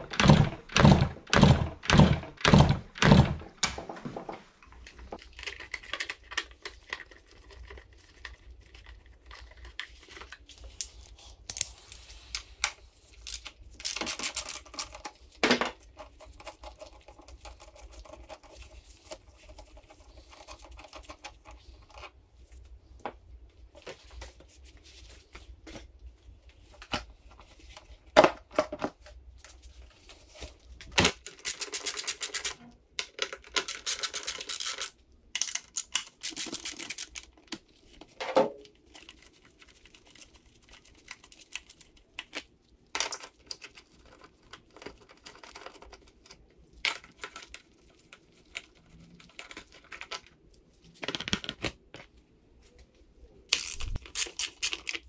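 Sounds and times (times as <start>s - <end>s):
plastic and metal parts knocking: 0.0s - 4.4s.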